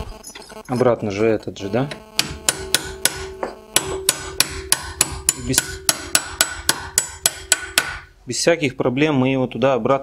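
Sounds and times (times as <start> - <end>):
hammer tapping metal: 2.2 - 8.1.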